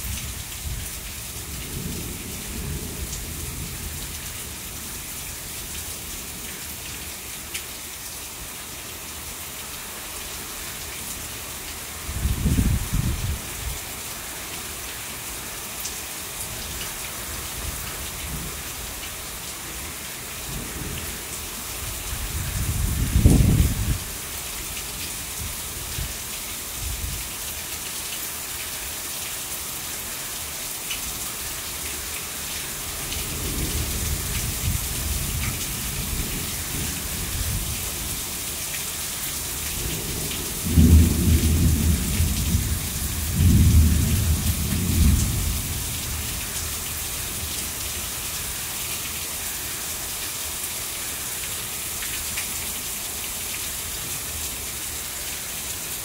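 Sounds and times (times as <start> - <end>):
heavy rain pouring: 0.0 - 56.0
low thunder rumbles: 12.2 - 13.4, 22.4 - 24.1, 39.8 - 46.3.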